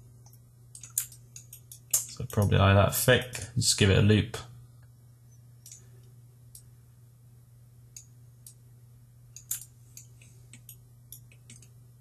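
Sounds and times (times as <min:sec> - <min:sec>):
computer mouse clicks: 0:00.2 - 0:02.4, 0:09.4 - 0:11.8.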